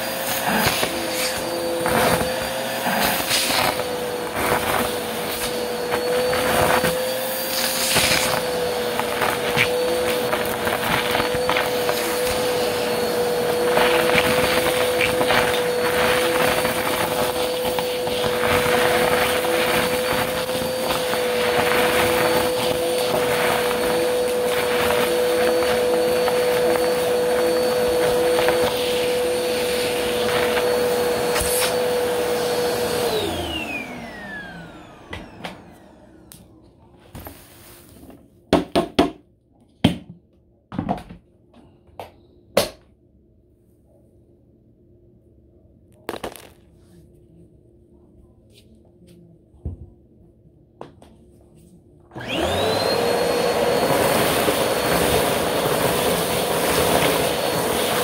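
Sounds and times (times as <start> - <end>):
vacuum motor spinning down: 0.0 - 36.6, 52.1 - 58.0
vacuum cleaner running: 0.0 - 38.6, 52.1 - 58.0.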